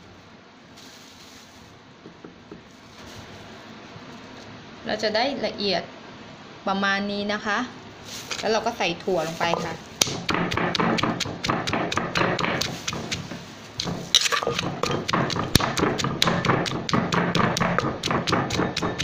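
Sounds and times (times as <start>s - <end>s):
pestle pounding in mortar: 9.5s - 19.0s.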